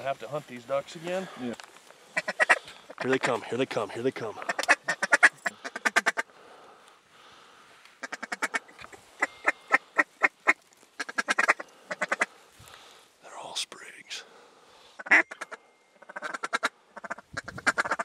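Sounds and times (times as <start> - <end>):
duck call quacks: 2.2 - 3.3, 4.4 - 6.3, 8.0 - 12.3, 15.0 - 18.0.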